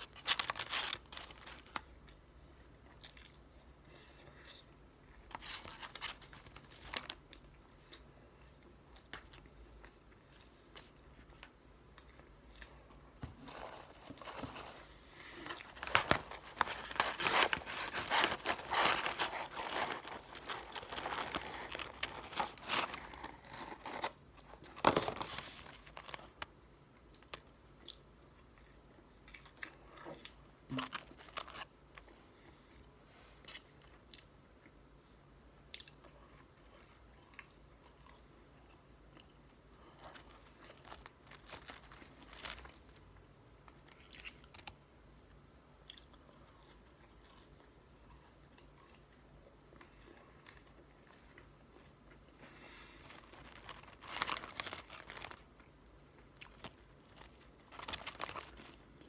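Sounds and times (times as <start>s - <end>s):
paper crinkling and rustling: 0.0s - 2.0s, 5.3s - 7.4s, 13.2s - 26.5s, 39.9s - 43.0s, 52.7s - 55.6s, 56.5s - 59.0s.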